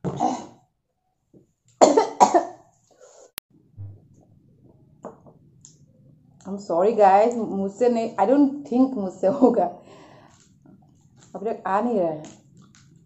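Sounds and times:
woman coughing: 0:01.8 - 0:02.6.

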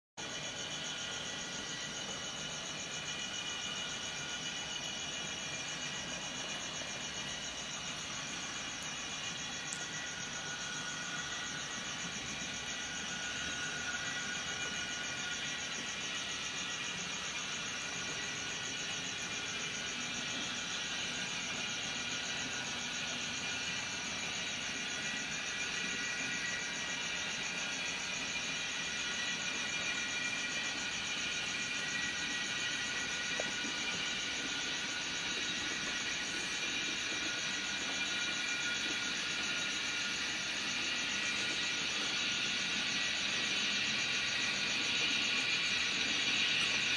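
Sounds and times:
high fluttering hiss: 0:00.2 - 0:46.9.

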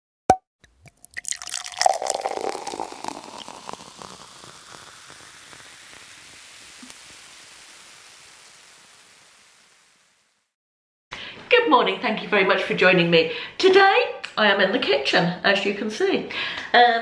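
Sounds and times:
soft steady hiss: 0:02.3 - 0:10.6.

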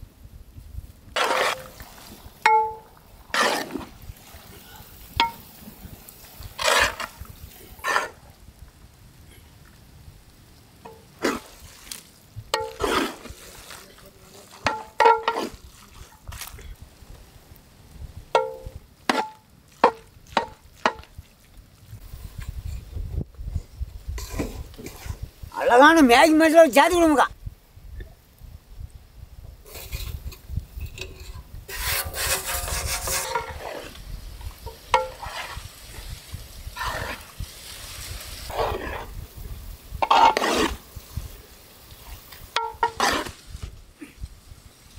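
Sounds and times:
ladle scraping metal pot: 0:01.2 - 0:01.8, 0:02.5 - 0:03.8, 0:12.6 - 0:13.4, 0:14.7 - 0:15.6, 0:24.2 - 0:25.2, 0:29.7 - 0:36.1, 0:40.0 - 0:40.8, 0:42.3 - 0:43.4
metal on metal clanks: 0:02.4 - 0:02.9, 0:30.8 - 0:33.6, 0:34.6 - 0:35.4.

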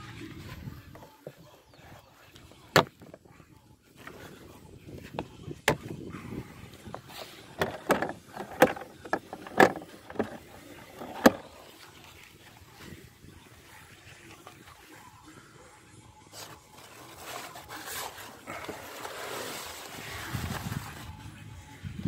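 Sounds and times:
handling rustle: 0:16.3 - 0:21.2.

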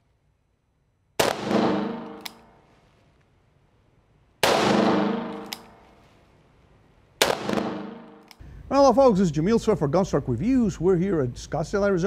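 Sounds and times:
revolver shot echoing: 0:01.2 - 0:02.5, 0:04.4 - 0:05.8, 0:07.2 - 0:08.2.

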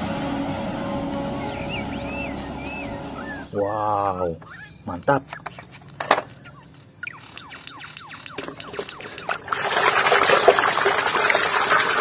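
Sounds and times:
water splashing and sloshing: 0:08.2 - 0:12.0.

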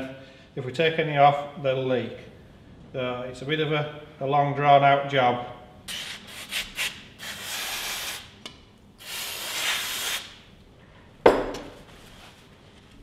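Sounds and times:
aerosol can spraying: 0:05.9 - 0:08.3
sharp knock on bench: 0:11.3 - 0:11.7.

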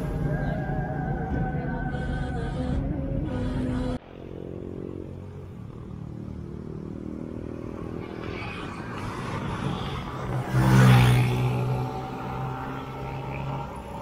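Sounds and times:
vehicle engine and road noise: 0:00.0 - 0:14.0
vehicle passing close by: 0:04.0 - 0:14.0.

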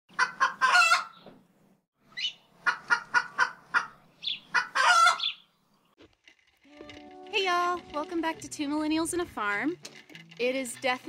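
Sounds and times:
hen cackling: 0:00.1 - 0:01.2, 0:02.2 - 0:05.4.

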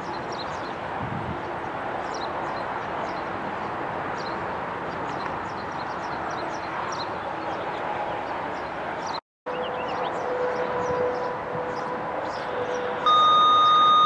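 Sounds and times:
steady tone: 0:13.0 - 0:14.0.

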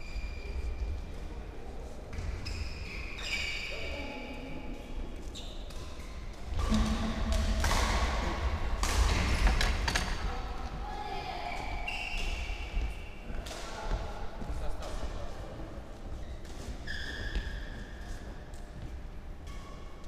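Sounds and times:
shoe squeaks on court floor: 0:02.2 - 0:03.9, 0:05.2 - 0:05.7, 0:16.2 - 0:18.2
rackets striking shuttlecocks: 0:05.7 - 0:10.2.

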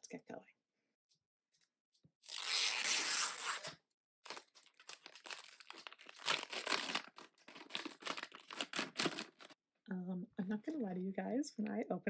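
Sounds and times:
tear strip ripping: 0:02.2 - 0:09.3
plastic wrapping crinkling: 0:04.3 - 0:09.6.

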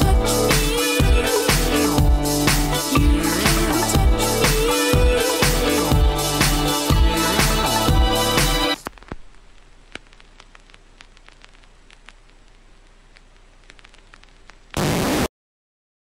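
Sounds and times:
electro-pop song: 0:00.0 - 0:08.9
loud burst of static hiss: 0:08.0 - 0:15.3
faint static crackle with clicks: 0:08.7 - 0:15.3.

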